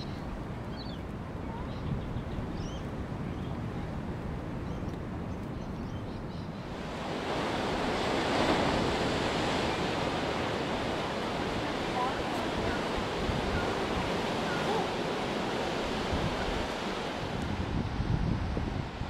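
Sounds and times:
low wind rumble: 0:00.0 - 0:19.0
surf breaking on rocks: 0:06.7 - 0:19.0.

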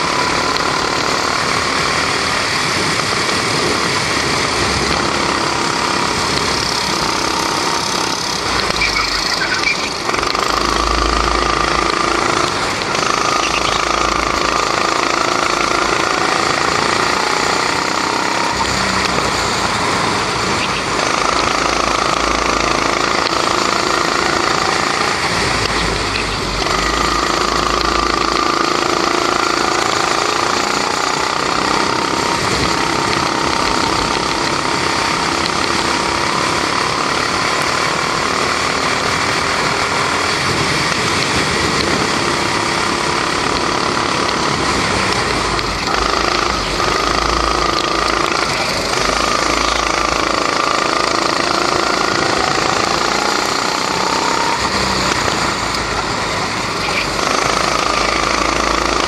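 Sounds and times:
go-kart engine running hard: 0:00.0 - 0:59.0.

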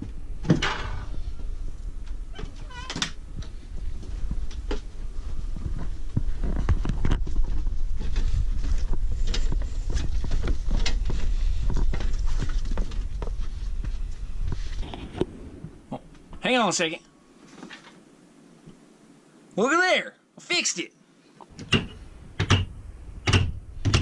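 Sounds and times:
low microphone rumble: 0:00.0 - 0:16.4, 0:21.6 - 0:24.0
footsteps: 0:01.0 - 0:16.5.

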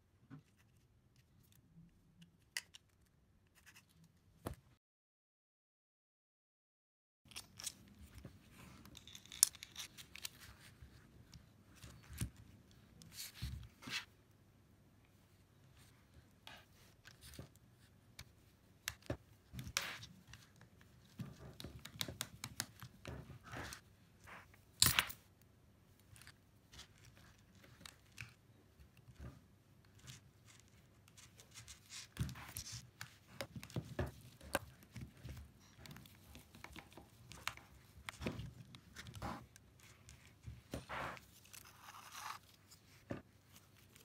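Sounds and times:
plastic parts clicks and scrapes: 0:07.3 - 0:10.8.

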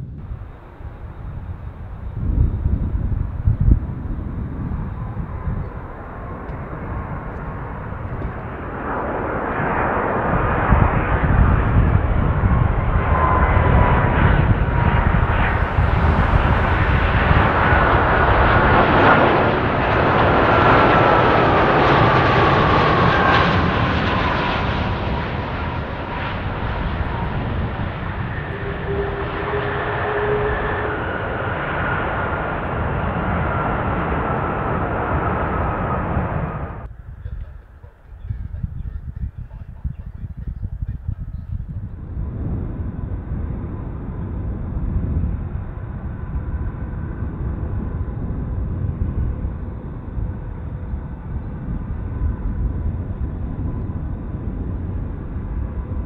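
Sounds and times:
jet airliner engines rushing: 0:00.0 - 0:56.0
engine whine sliding down: 0:00.1 - 0:36.9.

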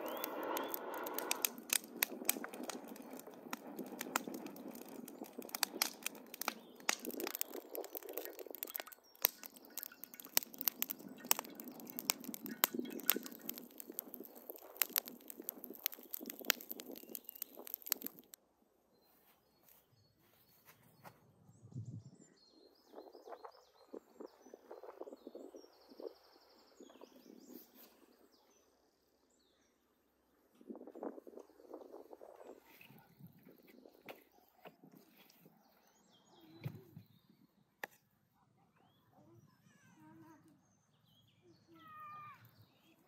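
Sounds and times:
low rumble: 0:00.0 - 0:03.7
birds chirping: 0:00.0 - 0:18.3
wood fire crackling and popping: 0:00.0 - 0:18.4.

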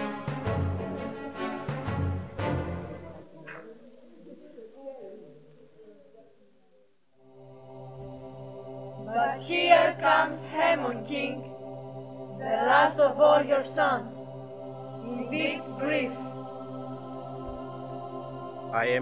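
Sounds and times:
steady musical drone: 0:00.0 - 0:03.3, 0:07.2 - 0:19.0
women chanting in unison: 0:07.3 - 0:18.7.

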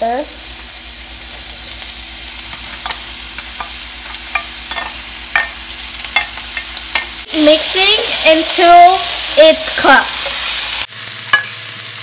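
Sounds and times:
vegetables sizzling in oil: 0:00.0 - 0:12.0
utensil clinking on plate and pan: 0:03.6 - 0:07.1.

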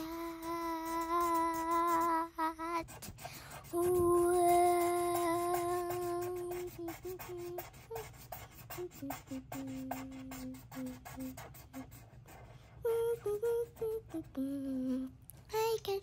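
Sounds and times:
felt-tip marker on paper: 0:00.0 - 0:12.5
child singing and humming: 0:00.0 - 0:16.0.

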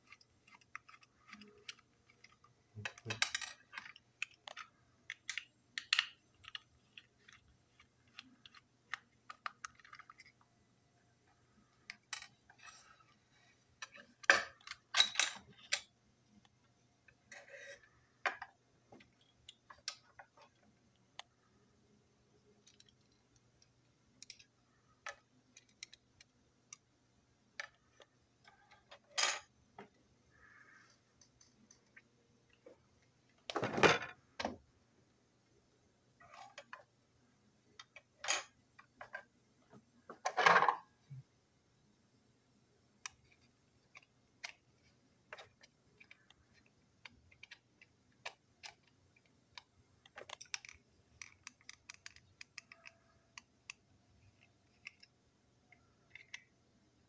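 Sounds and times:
light clicks of toy parts: 0:22.6 - 0:26.8, 0:43.0 - 0:55.1
pieces clattering on table: 0:33.5 - 0:34.2.

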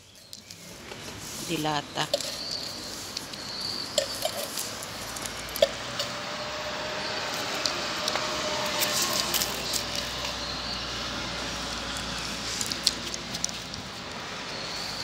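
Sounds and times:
street noise: 0:00.0 - 0:15.0
wet food squishing: 0:07.1 - 0:14.0.

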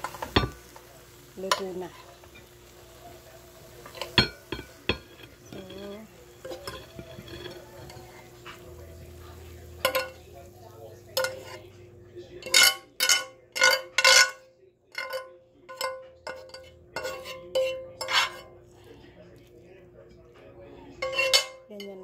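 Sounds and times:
metal fork scraping grill pan: 0:03.8 - 0:10.2, 0:11.1 - 0:11.7, 0:12.4 - 0:18.5, 0:21.0 - 0:22.0.

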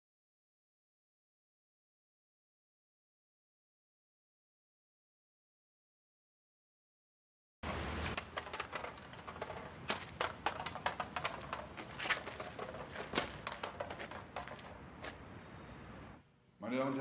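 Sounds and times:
low street rumble: 0:07.6 - 0:16.3
footsteps on wet pavement: 0:07.7 - 0:15.7.

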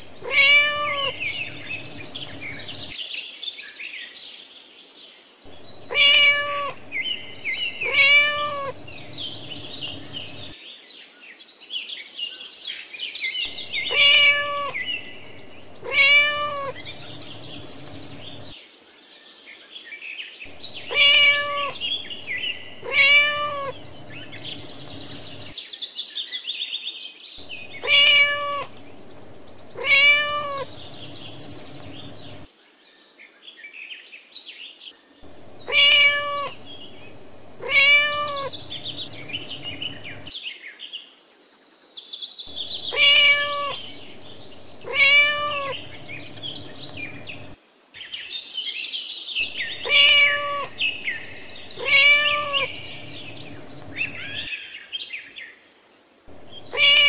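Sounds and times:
high bird chirping: 0:00.0 - 0:03.1, 0:05.5 - 0:10.6, 0:13.4 - 0:18.5, 0:20.5 - 0:25.6, 0:27.4 - 0:32.5, 0:35.2 - 0:40.3, 0:42.5 - 0:47.6, 0:49.4 - 0:54.6, 0:56.3 - 0:57.0
cat meowing loudly: 0:00.2 - 0:01.3, 0:05.8 - 0:06.8, 0:07.7 - 0:08.8, 0:13.5 - 0:14.9, 0:15.8 - 0:17.0, 0:20.8 - 0:21.8, 0:22.8 - 0:25.5, 0:27.7 - 0:28.7, 0:29.8 - 0:30.8, 0:35.7 - 0:36.6, 0:37.6 - 0:39.0, 0:42.9 - 0:43.8, 0:44.8 - 0:45.9, 0:49.8 - 0:50.8, 0:51.8 - 0:53.1, 0:56.6 - 0:57.0.

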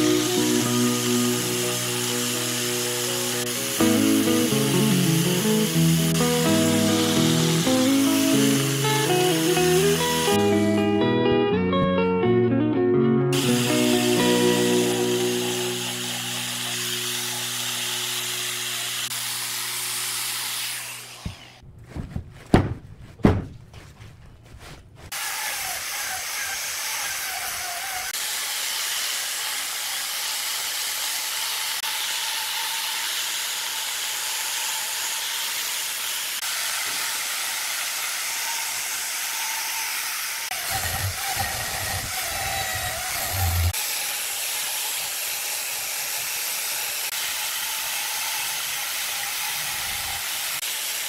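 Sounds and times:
angle grinder grinding wood: 0:00.0 - 0:10.8, 0:13.3 - 0:21.7, 0:24.2 - 0:51.0
sharp knocks: 0:21.2 - 0:24.2.

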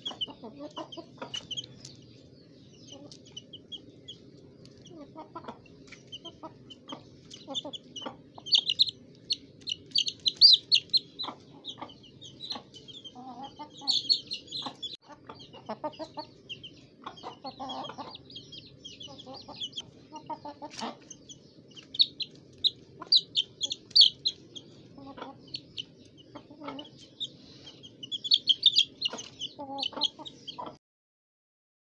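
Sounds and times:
steady low hum: 0:00.0 - 0:29.6
chickens clucking: 0:00.0 - 0:30.8
high chirping: 0:00.0 - 0:30.8.

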